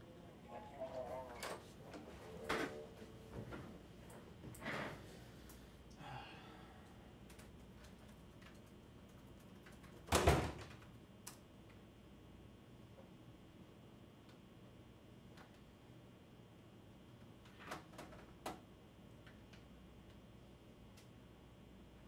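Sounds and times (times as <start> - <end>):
laptop keyboard typing: 7.3 - 10.1.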